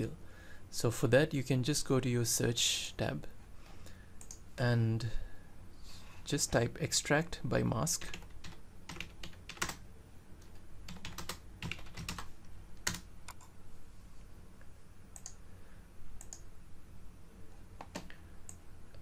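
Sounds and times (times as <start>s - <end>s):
computer keyboard typing: 8.0s - 9.8s, 10.9s - 13.5s, 15.1s - 15.4s, 17.8s - 18.6s.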